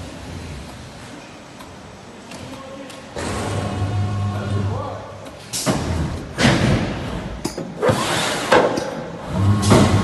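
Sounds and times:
low machine hum: 3.2s - 7.2s
heavy machine thumps: 5.6s - 7.2s, 9.4s - 10.0s
box-making machine running: 9.2s - 10.0s.

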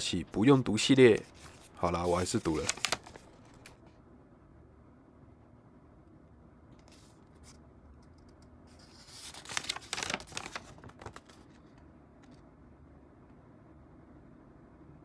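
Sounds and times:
paper crinkling and rustling: 0.3s - 3.8s, 8.7s - 12.4s.

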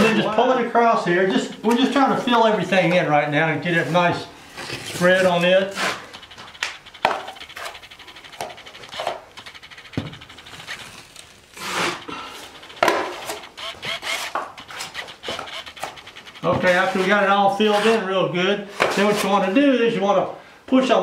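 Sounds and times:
knife scraping wet compound: 3.7s - 6.2s, 11.6s - 12.4s, 14.2s - 18.1s, 18.7s - 19.6s.

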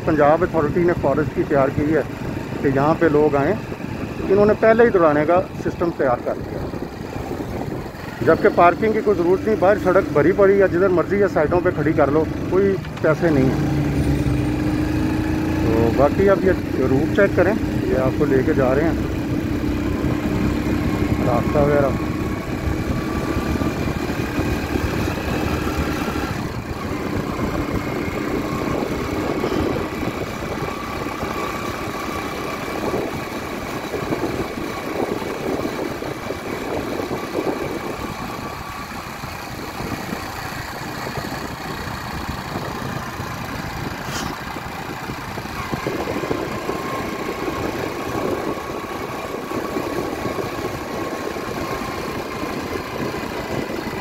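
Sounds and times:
motorcycle engine running: 0.0s - 54.0s
road noise: 0.0s - 54.0s.

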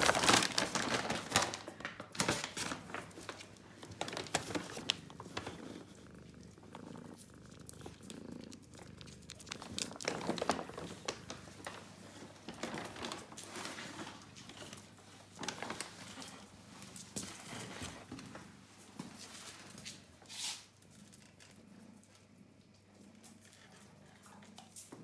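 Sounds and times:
paper bag rustling: 0.0s - 6.2s, 9.6s - 14.8s.

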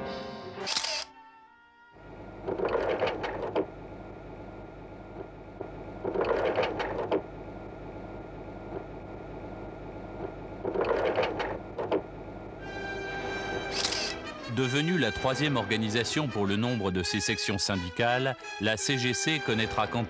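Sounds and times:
steady low hum: 2.0s - 14.5s
rapid mechanical clatter: 2.4s - 3.8s, 5.1s - 7.4s, 10.1s - 12.2s.

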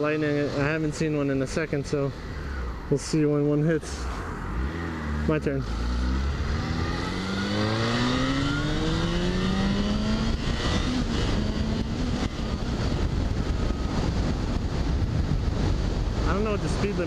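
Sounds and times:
wind rush on microphone: 0.0s - 17.0s
motorcycle engine accelerating: 4.1s - 17.0s.

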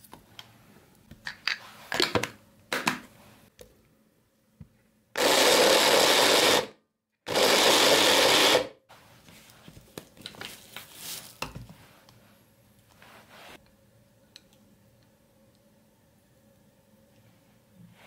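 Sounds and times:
electric chopper whirring: 7.3s - 8.7s.

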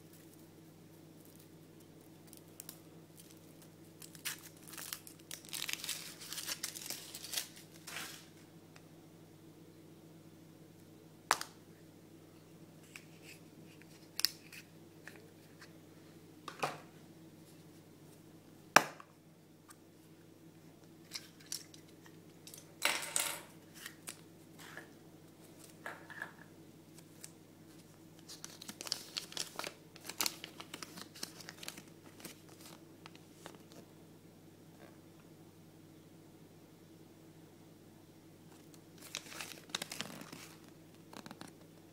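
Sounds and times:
crinkly rustle: 1.2s - 8.4s, 27.0s - 33.8s, 38.5s - 41.7s
paper crinkling: 1.2s - 8.4s, 26.9s - 33.8s, 38.5s - 41.7s.

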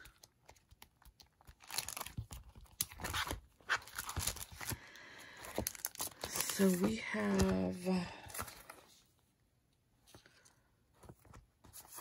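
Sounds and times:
plastic sleeves crinkling: 0.0s - 8.8s.

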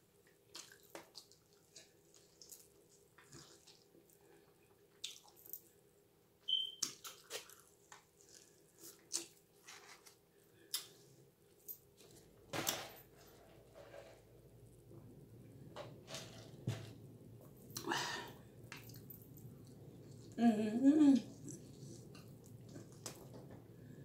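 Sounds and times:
chewing and crunching: 0.4s - 5.7s, 6.8s - 9.8s, 21.3s - 23.3s.

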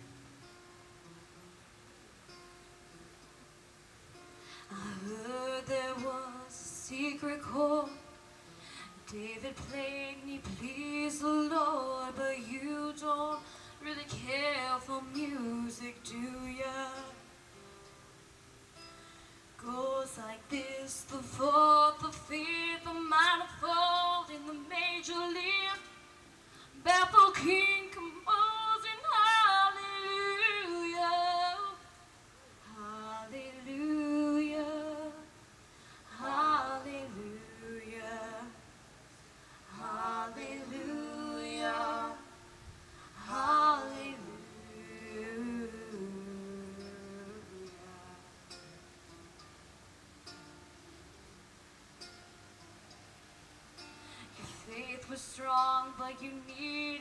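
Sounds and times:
acoustic guitar: 0.0s - 57.0s
woman singing: 4.6s - 17.4s, 19.6s - 35.4s, 36.0s - 38.8s, 39.6s - 42.5s, 43.1s - 48.7s, 54.2s - 57.0s.

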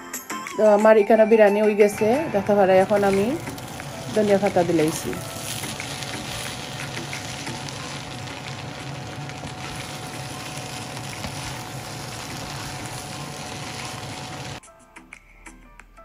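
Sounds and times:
food sizzling in a pan: 2.2s - 14.6s
wooden spatula stirring: 2.9s - 14.6s.

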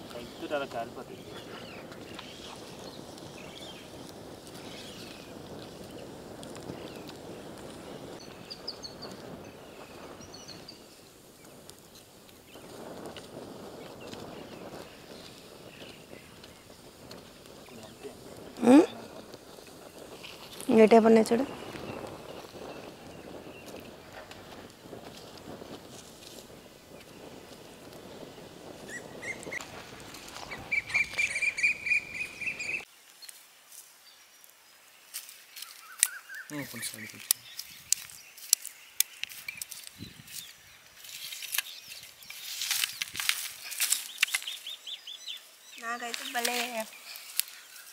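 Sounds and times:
nuts crackling in fire: 0.0s - 47.9s
small bird chirping: 30.4s - 33.3s, 35.6s - 43.2s
faint scattered clicks: 41.2s - 44.6s.

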